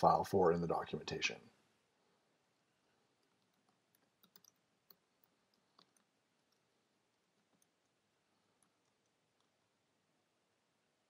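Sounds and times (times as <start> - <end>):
computer keyboard clicks: 3.2 - 6.6.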